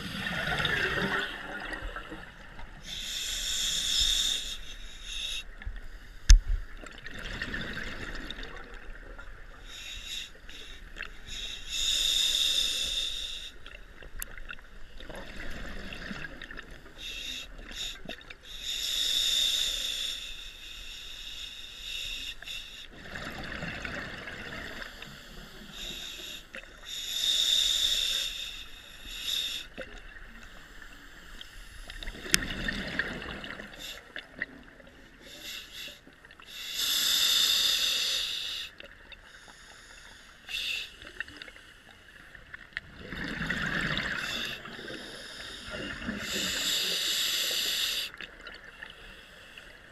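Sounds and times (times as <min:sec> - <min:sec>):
regulator air rush inhale: 0:02.8 - 0:06.3, 0:09.7 - 0:13.8, 0:17.0 - 0:23.0, 0:24.7 - 0:29.8, 0:35.1 - 0:42.0, 0:44.0 - 0:48.2.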